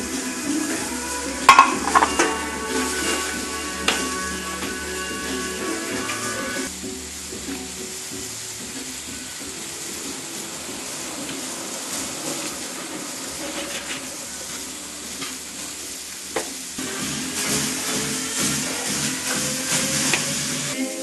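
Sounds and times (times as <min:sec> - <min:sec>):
vegetables sizzling in oil: 0:00.0 - 0:21.0
spatula scraping pan: 0:01.4 - 0:06.6, 0:11.9 - 0:15.4.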